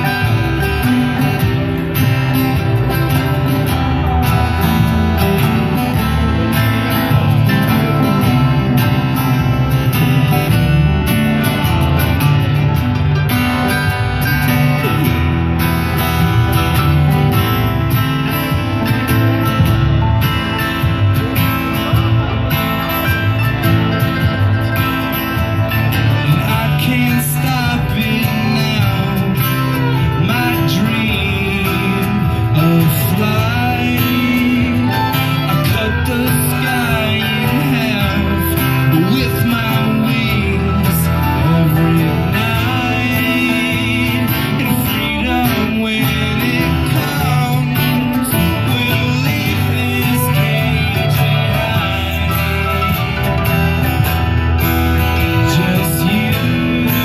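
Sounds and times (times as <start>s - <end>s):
man singing: 0.0s - 12.8s, 25.3s - 57.0s
accordion: 0.0s - 57.0s
fiddle: 0.0s - 57.0s
mandolin: 0.0s - 57.0s
strummed acoustic guitar: 0.0s - 57.0s.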